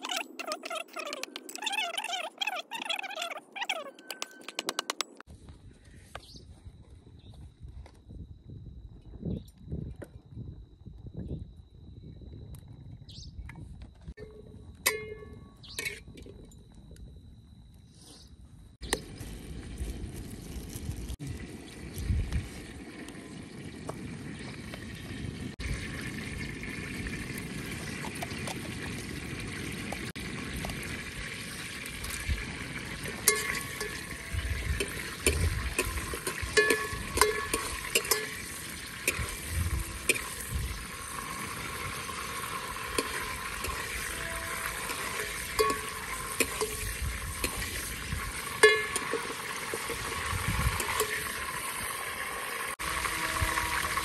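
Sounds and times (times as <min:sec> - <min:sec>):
ladle clinking against pot: 0:33.3 - 0:34.2, 0:34.8 - 0:38.4, 0:44.9 - 0:46.8, 0:48.6 - 0:50.0
ladle stirring liquid in pot: 0:34.8 - 0:40.4, 0:41.7 - 0:51.3.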